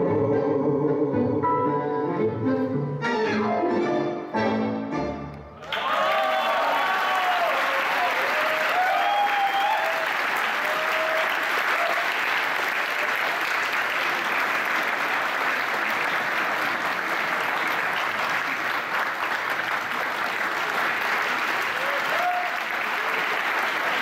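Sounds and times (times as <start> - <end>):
tango music: 0.0 - 5.6
audience applauding: 5.6 - 24.0.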